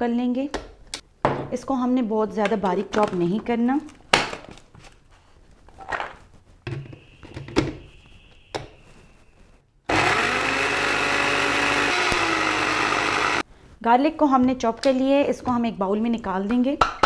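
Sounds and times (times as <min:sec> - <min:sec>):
blender motor running: 0:09.9 - 0:13.4.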